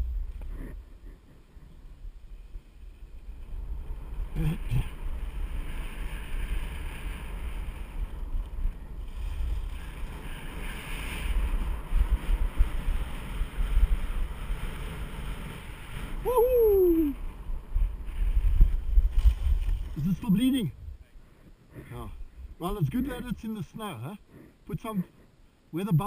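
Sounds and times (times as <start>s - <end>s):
wind buffeting microphone: 0.0s - 21.1s
skis scraping on snow: 0.5s - 20.6s.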